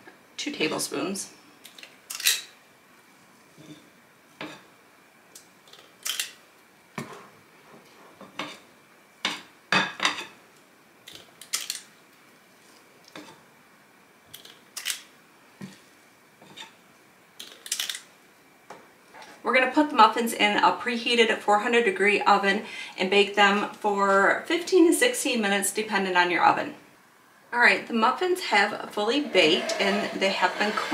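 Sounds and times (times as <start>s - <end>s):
scoop scraping glass bowl: 29.1s - 30.9s.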